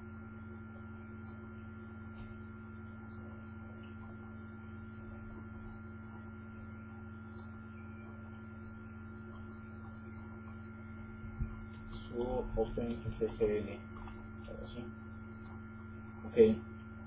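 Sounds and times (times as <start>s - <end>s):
steady electrical hum: 0.0s - 17.0s.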